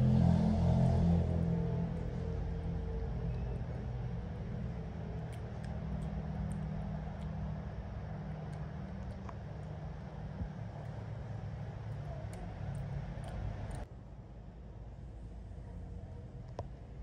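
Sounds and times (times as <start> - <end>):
low mechanical hum: 0.0 - 17.0
faint light clicks: 5.0 - 7.6.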